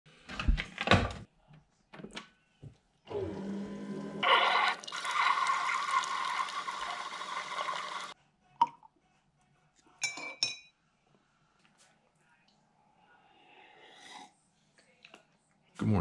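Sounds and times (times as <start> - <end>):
coffee machine humming: 3.1 - 8.1
coffee pouring into a mug: 4.2 - 8.2.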